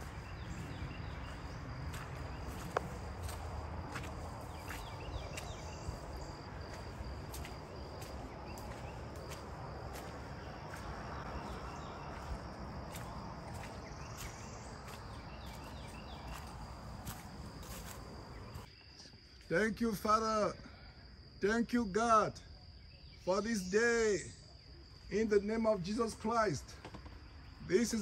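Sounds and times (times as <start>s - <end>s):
footsteps on wet dirt path: 0.0s - 18.7s
low wind rumble: 0.0s - 18.7s
high-pitched insect trill: 0.0s - 26.6s.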